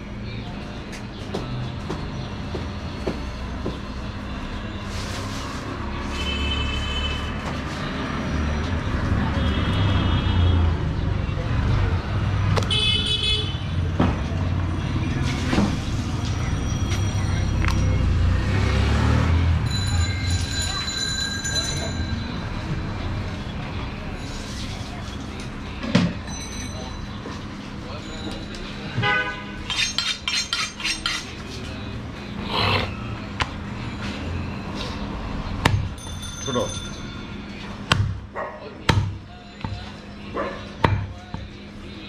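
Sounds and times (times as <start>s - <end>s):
knife scraping on steel blade: 29.6s - 31.4s.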